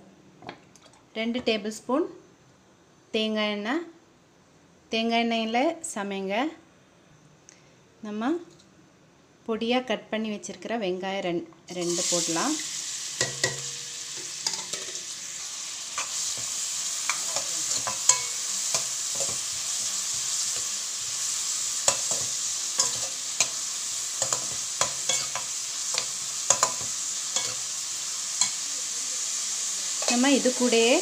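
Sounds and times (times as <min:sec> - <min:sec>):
onions sizzling in hot oil: 0:11.7 - 0:31.0
metal spoon scraping a pan: 0:13.2 - 0:28.7, 0:29.9 - 0:30.7.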